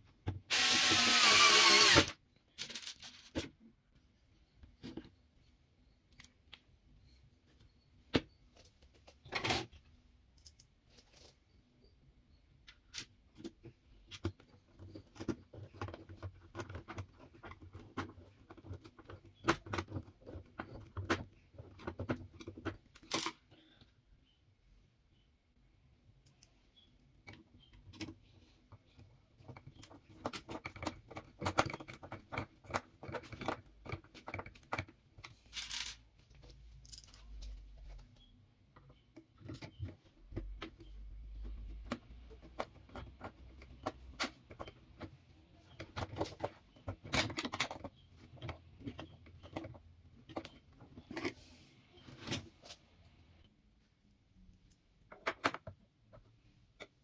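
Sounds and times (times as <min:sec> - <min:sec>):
small hard parts rattling: 0:00.6 - 0:03.6.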